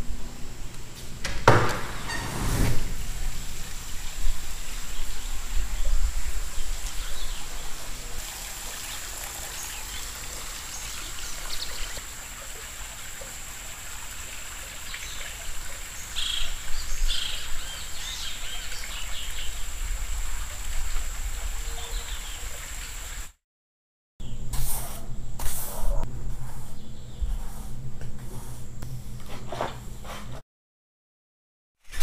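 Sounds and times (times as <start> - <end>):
steady outdoor hiss: 0.0 - 23.4
birds chirping: 4.7 - 8.2, 14.8 - 19.7.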